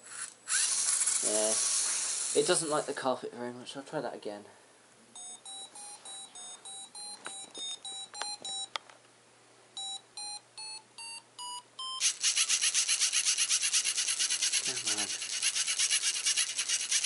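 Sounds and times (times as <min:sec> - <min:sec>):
motors and gears rattling: 0:00.1 - 0:02.8, 0:12.0 - 0:17.0
short electronic beeps: 0:05.2 - 0:08.7, 0:09.8 - 0:12.0.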